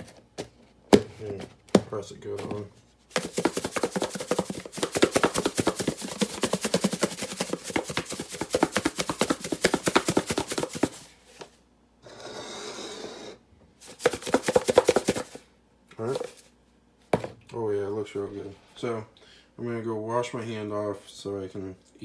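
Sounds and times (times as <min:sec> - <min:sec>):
food shaken in glass container: 0:03.1 - 0:11.1, 0:13.8 - 0:15.4.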